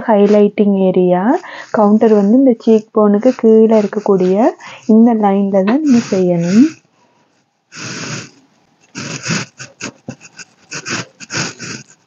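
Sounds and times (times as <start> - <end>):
makeup brush rustling: 0.0 - 6.7
soft breathy hiss: 0.0 - 12.0
breath on microphone: 1.3 - 12.0.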